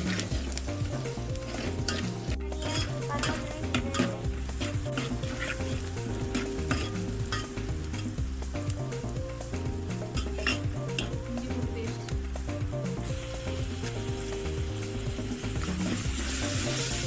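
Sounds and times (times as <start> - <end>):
food sizzling in a pot: 0.0 - 17.0
spoon clinking and scraping pot: 1.4 - 8.1, 10.1 - 11.2.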